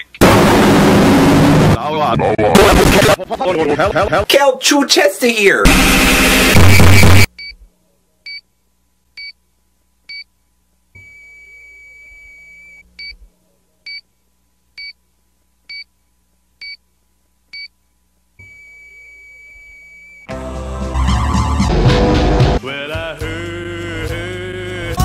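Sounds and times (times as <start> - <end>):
monitor flatline tone: 5.7 - 7.6, 18.4 - 20.3
loud music: 20.3 - 23.6.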